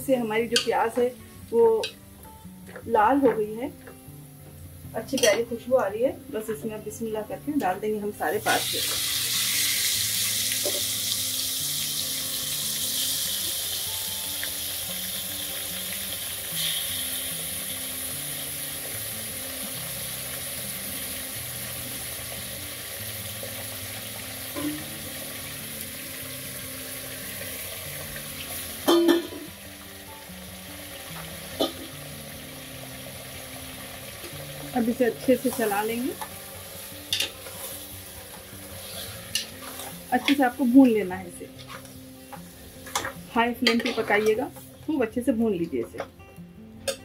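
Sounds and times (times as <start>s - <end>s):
soft background music: 0.0s - 47.0s
meat sizzling in hot oil: 8.2s - 44.6s.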